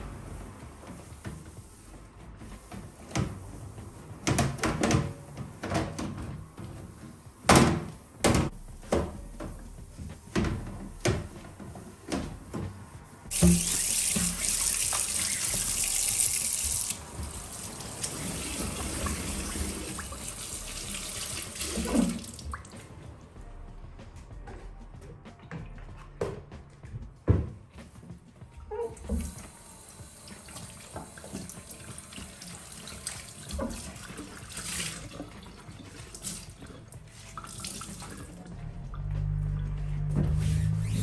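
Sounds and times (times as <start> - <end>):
water running into steel sink: 13.3 - 22.5
cloth wiping countertop: 39.8 - 41.0.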